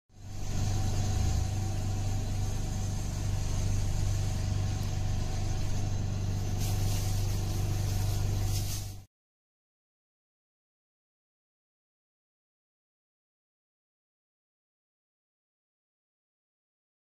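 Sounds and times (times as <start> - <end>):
crackling noise: 0.1 - 9.1
faint high whine: 0.1 - 9.1
low steady hum: 0.1 - 9.1.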